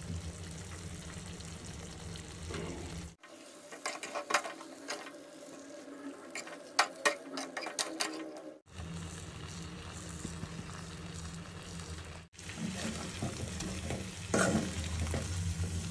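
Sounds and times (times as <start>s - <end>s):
metal spatula scraping a pot: 3.7s - 5.2s, 6.2s - 8.5s, 12.6s - 15.3s.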